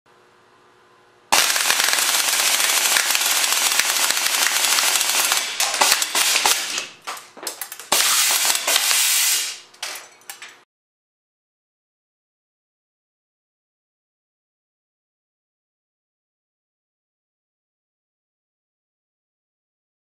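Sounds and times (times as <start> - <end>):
air gun firing full auto: 1.3 - 7.0, 7.9 - 9.7
pellets striking a can: 1.3 - 9.6.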